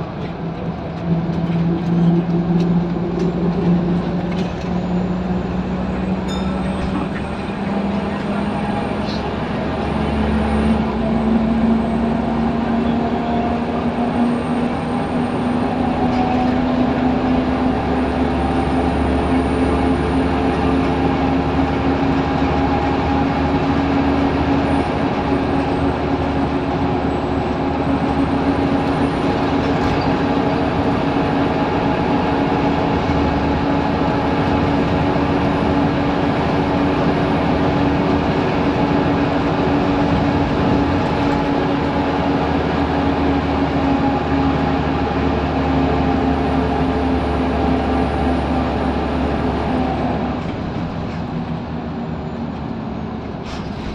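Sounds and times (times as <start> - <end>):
bus diesel engine drone: 0.0 - 53.9
road and tyre noise: 0.0 - 53.9.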